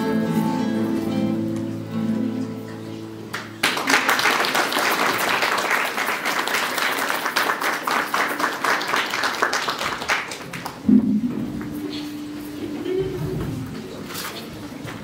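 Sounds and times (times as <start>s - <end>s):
audience applause: 3.3s - 11.8s.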